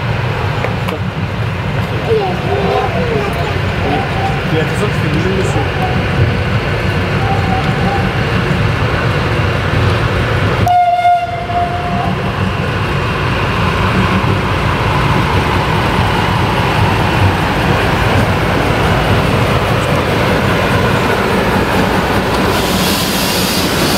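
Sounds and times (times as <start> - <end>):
diesel locomotive rumble: 0.0 - 23.9
train horn blast: 10.6 - 12.2.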